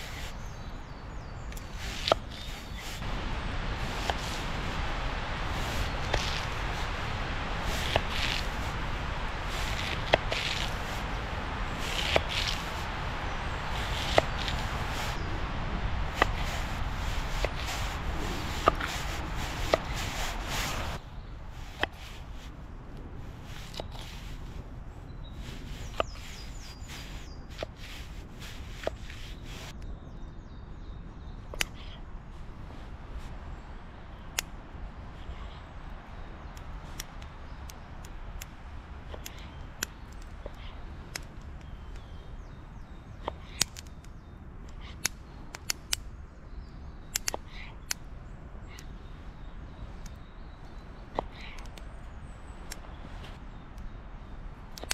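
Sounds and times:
bird singing: 0.0s - 3.0s, 24.9s - 28.1s, 28.8s - 32.2s, 39.1s - 54.9s.

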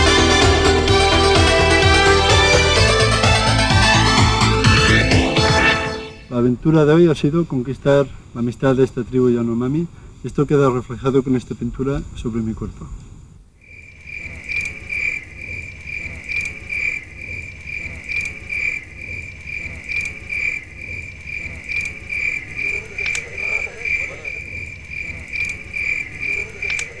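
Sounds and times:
insect chirping trill: 7.5s - 27.0s.

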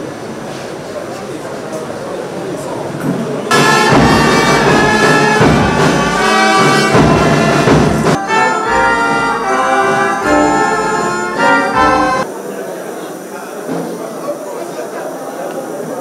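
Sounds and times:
brass band playing an anthem: 3.5s - 12.3s.

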